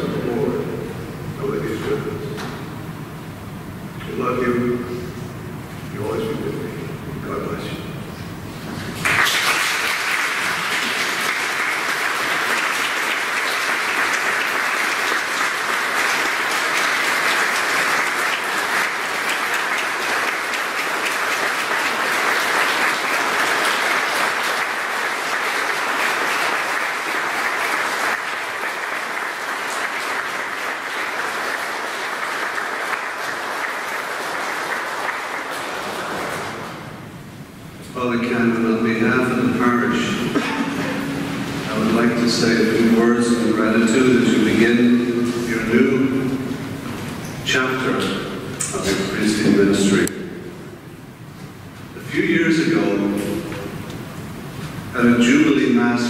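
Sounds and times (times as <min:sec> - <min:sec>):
congregation applauding: 0:08.8 - 0:37.1, 0:39.6 - 0:50.9.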